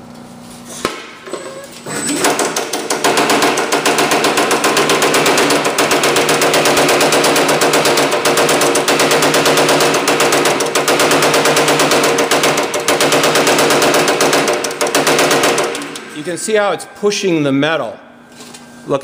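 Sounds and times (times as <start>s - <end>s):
power hammer pounding metal panel: 2.2s - 16.5s.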